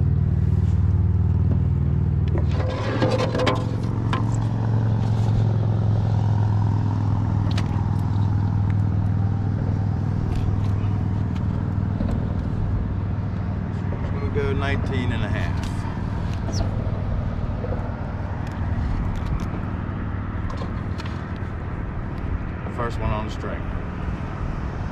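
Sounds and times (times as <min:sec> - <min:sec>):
road traffic drone: 0:00.0 - 0:24.9
scraping and clattering: 0:02.3 - 0:05.6.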